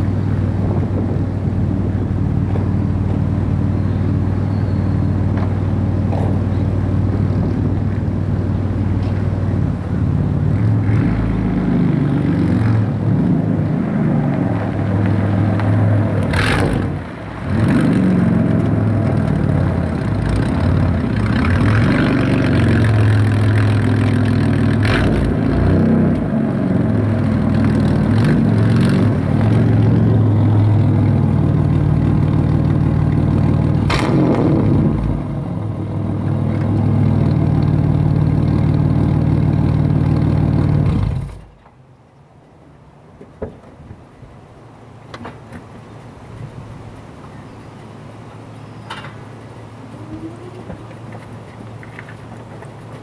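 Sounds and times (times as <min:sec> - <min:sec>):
car engine idling: 0:14.8 - 0:41.6.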